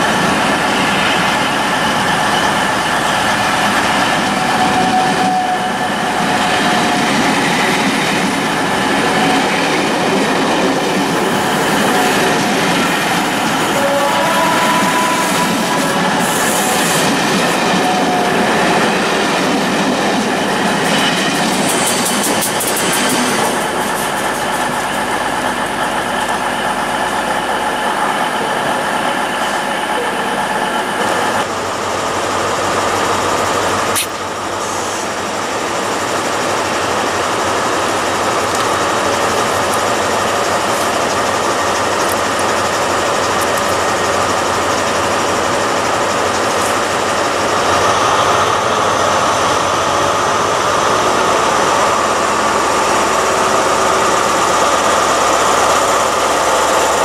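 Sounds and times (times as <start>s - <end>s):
train wheels clattering on rails: 0.0s - 30.4s.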